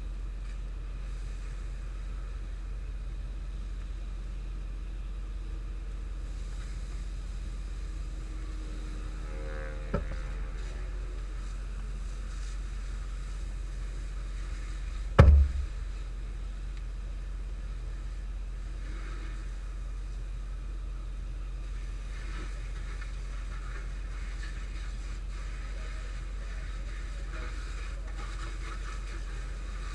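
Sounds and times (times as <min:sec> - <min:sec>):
vehicle idling: 0:00.0 - 0:29.9
car door slamming: 0:15.2 - 0:15.8.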